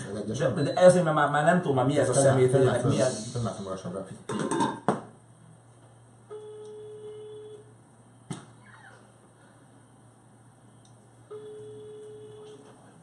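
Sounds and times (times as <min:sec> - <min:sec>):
telephone ringback tone: 0:06.3 - 0:07.6, 0:11.3 - 0:12.7.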